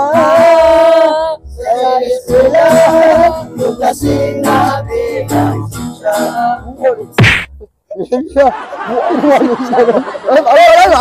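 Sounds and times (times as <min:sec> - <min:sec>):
men singing together: 0:00.0 - 0:06.8
strummed acoustic guitar: 0:00.0 - 0:07.6.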